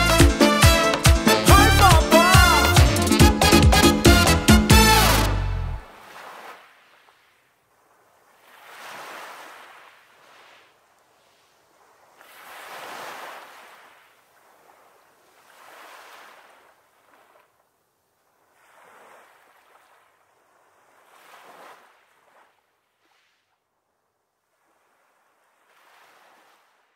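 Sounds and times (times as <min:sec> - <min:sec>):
sea waves washing onto beach: 0:05.9 - 0:17.7, 0:18.3 - 0:23.4.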